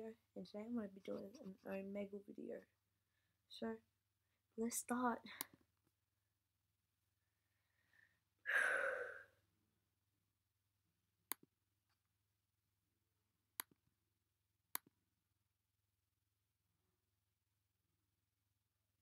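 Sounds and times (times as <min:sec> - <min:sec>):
breathy exhale into microphone: 0:08.5 - 0:09.4.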